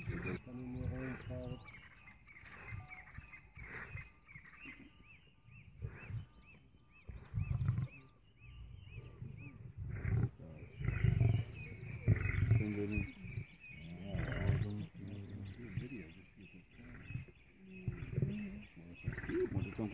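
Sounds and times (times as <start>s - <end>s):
lion rasping snarl: 0.0s - 1.7s, 2.4s - 4.1s, 5.8s - 6.3s, 7.2s - 8.0s, 8.8s - 19.9s
bird chirping: 0.0s - 19.9s
lions growling: 0.0s - 19.9s.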